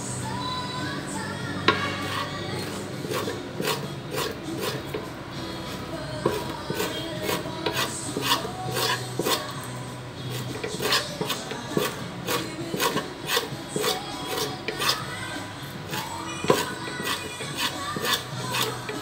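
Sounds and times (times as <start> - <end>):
tool scraping on wet wooden board: 1.7 - 5.1, 6.2 - 9.6, 10.3 - 15.1, 15.9 - 19.0.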